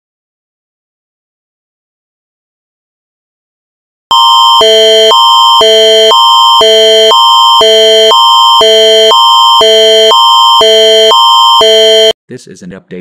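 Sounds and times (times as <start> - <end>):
alternating electronic alert tone: 4.1 - 12.2.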